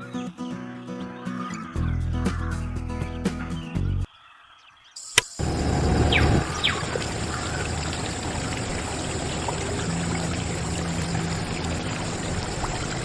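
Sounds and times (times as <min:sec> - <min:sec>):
water pouring into steel bucket: 0:06.7 - 0:13.0.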